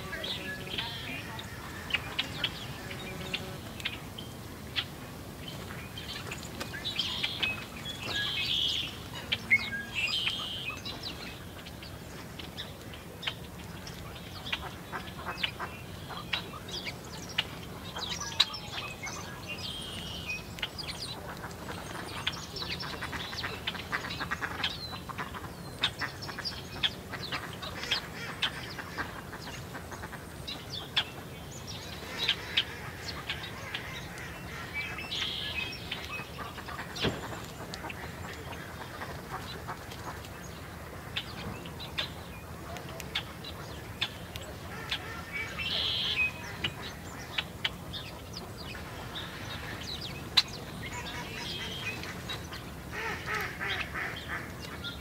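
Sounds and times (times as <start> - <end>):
songbirds chirping: 0.0 - 55.0
harsh raspy bird calls: 50.9 - 55.0.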